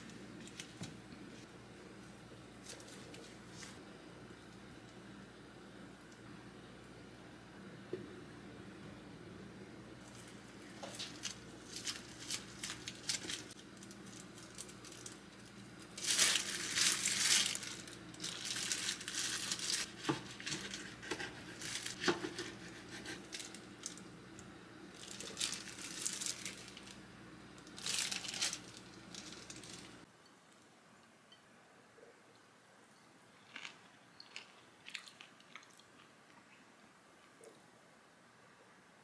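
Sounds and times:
steady low hum: 0.0 - 33.3
packaging crinkling: 10.0 - 24.1, 24.9 - 27.0, 27.6 - 30.0.

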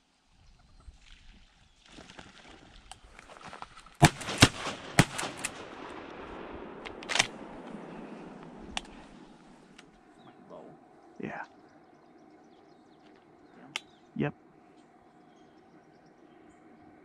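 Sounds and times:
shotgun blasts: 4.0 - 9.4
weaker sharp cracks: 4.0 - 9.9.

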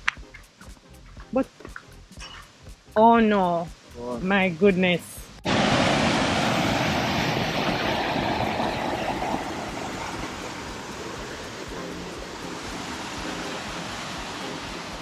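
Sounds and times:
river water rushing: 5.4 - 15.0.

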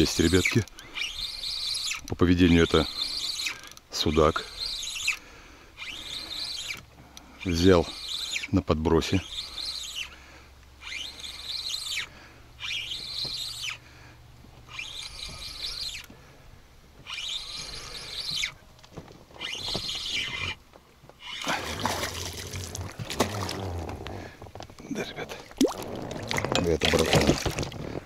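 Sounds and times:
fishing reel whirring: 0.0 - 13.9, 14.6 - 16.2, 17.0 - 18.6, 19.4 - 20.6, 21.2 - 22.7
fish splashing: 21.3 - 23.9, 25.3 - 27.8.

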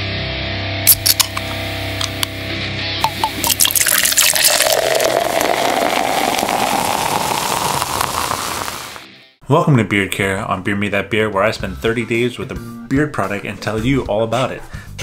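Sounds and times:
beer pouring into a glass: 3.0 - 9.0.

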